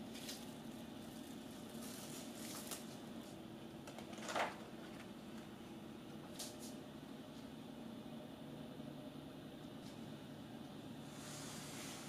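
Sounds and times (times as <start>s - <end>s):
plastic wrap crinkling: 0.0s - 3.0s
parchment paper rustling: 0.0s - 3.4s
low room hum: 0.0s - 12.0s.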